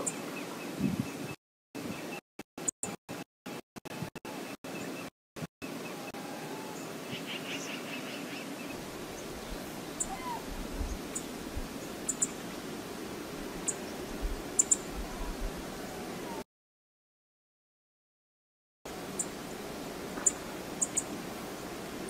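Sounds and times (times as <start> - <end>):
wind: 0.0 - 16.4, 18.9 - 22.0
wind buffeting microphone: 0.7 - 1.4, 8.9 - 11.9, 13.4 - 15.7
rushing water: 5.7 - 16.4, 18.9 - 22.0
bird gliding call: 9.0 - 11.4, 20.2 - 21.8
bird chirps: 12.1 - 12.4, 20.2 - 21.1.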